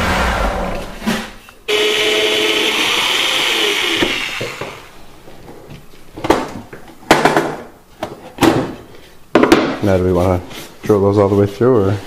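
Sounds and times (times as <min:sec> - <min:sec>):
sander motor whining: 0:01.7 - 0:05.0.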